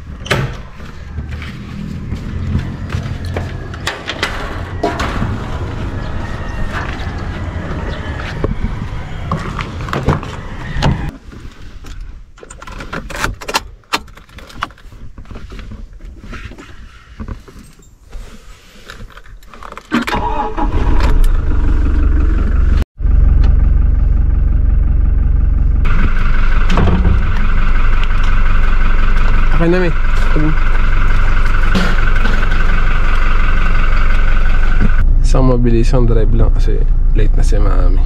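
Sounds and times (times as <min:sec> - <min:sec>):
car engine starting and idling: 0:20.0 - 0:38.0.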